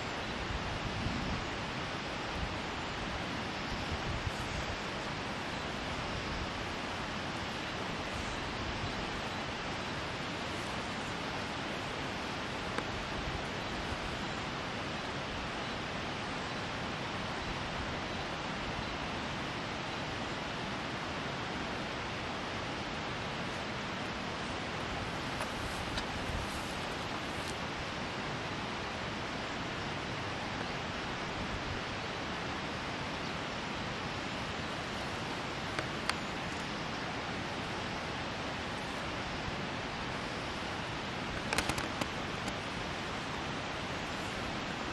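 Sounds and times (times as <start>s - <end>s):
flowing water rushing: 0.0s - 44.9s
outdoor background hiss: 0.0s - 44.9s
small click: 41.4s - 42.6s.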